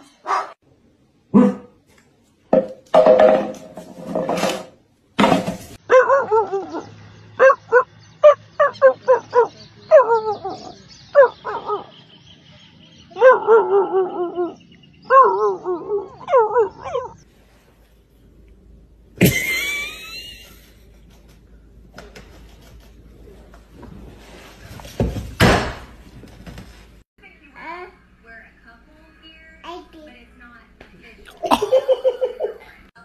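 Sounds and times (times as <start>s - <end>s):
dogs barking and yelping: 0.0s - 0.6s, 5.8s - 12.1s, 13.0s - 17.3s
dogs whining: 5.9s - 11.9s, 13.1s - 17.2s.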